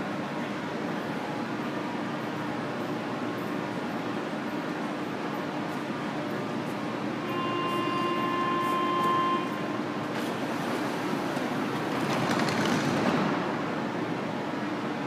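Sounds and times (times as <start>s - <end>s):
train rumble and rail noise: 0.0s - 15.0s
steady tone: 7.2s - 10.1s.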